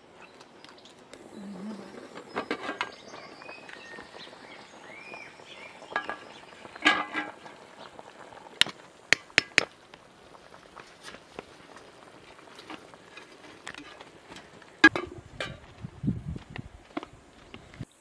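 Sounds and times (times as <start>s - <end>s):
birds chirping: 0.2s - 8.2s.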